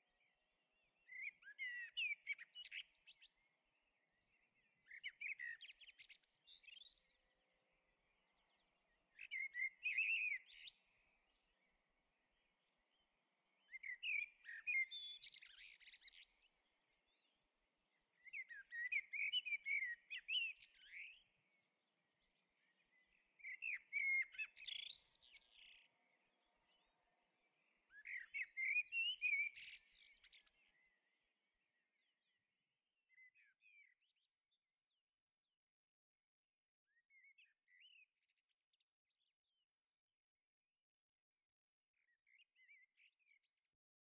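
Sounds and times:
songbird singing: 0.0 - 34.7.

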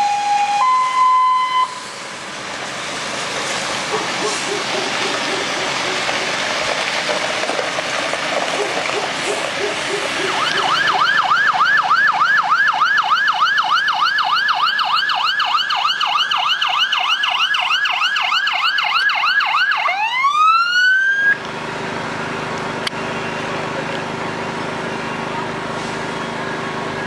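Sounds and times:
fire engine siren: 0.0 - 2.5, 8.5 - 27.0.

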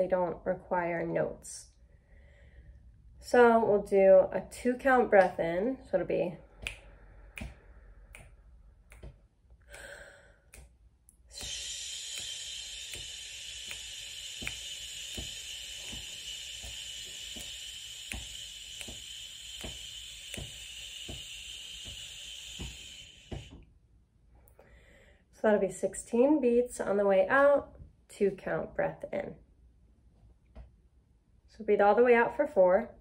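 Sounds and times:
person breathing in: 1.9 - 2.9, 9.6 - 10.6, 11.3 - 23.6, 24.6 - 25.3
finger snaps: 6.5 - 23.7
person exhaling shh: 11.3 - 23.6.

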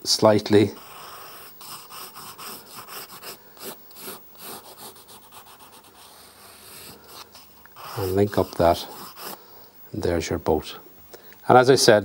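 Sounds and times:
pencil scratching on paper: 0.8 - 9.4.

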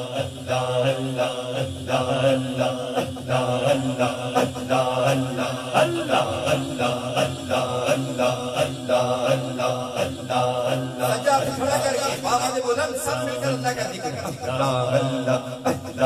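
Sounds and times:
steady low drone: 0.0 - 11.8
man chanting over loudspeaker: 0.0 - 16.0.

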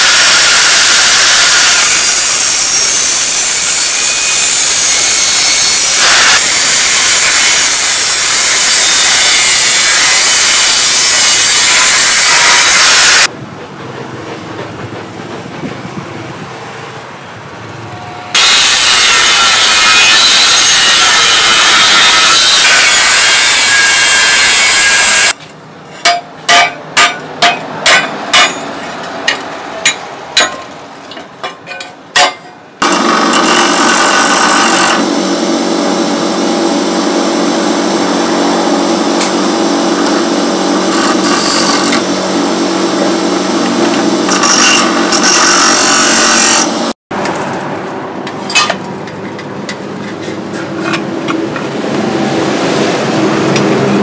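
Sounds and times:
power tool grinding steel: 0.0 - 13.3, 18.4 - 25.4, 32.8 - 46.9
bench grinder running: 32.8 - 46.9.

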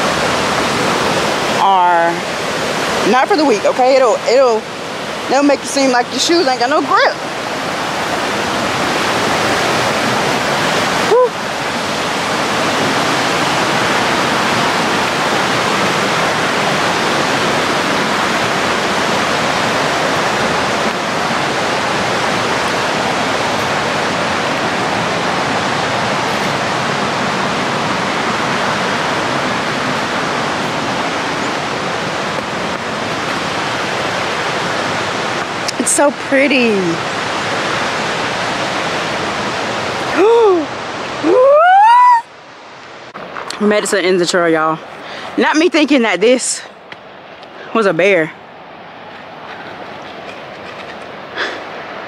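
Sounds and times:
river rushing over rapids: 0.0 - 52.0
person breathing out whew: 51.4 - 51.6.

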